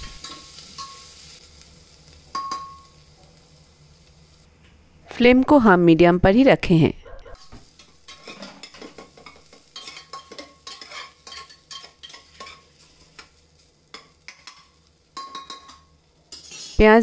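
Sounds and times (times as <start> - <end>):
onions sizzling in oil: 0.0 - 4.5, 7.4 - 17.0
metal spatula scraping pot: 8.1 - 9.0, 9.8 - 12.7.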